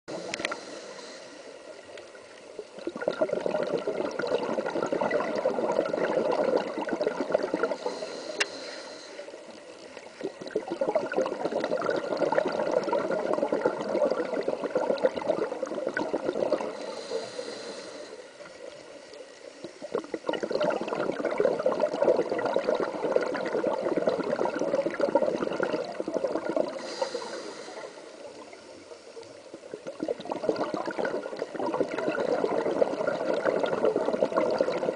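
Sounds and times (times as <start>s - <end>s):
regulator hiss: 0.1s - 2.7s, 7.7s - 10.2s, 16.7s - 19.9s, 26.8s - 29.6s
underwater bubbles from exhaling: 2.6s - 8.1s, 10.0s - 17.2s, 19.6s - 28.6s, 29.4s - 34.9s.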